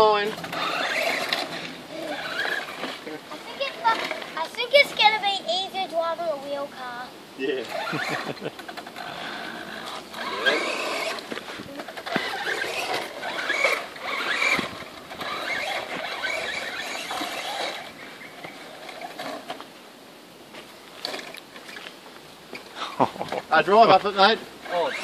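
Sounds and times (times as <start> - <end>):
toy truck motor whining: 0.0 - 5.1, 7.6 - 19.6, 24.6 - 25.0.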